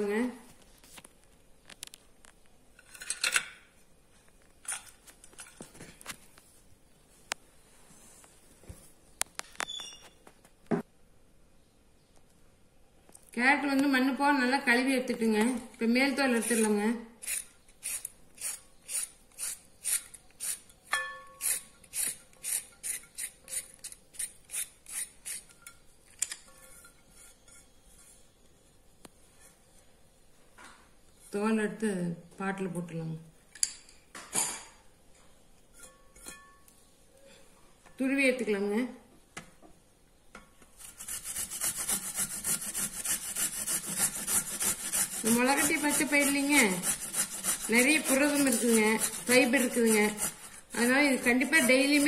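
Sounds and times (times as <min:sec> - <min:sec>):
peeler scraping carrot: 0:16.2 - 0:20.7, 0:21.4 - 0:25.6, 0:40.8 - 0:52.0.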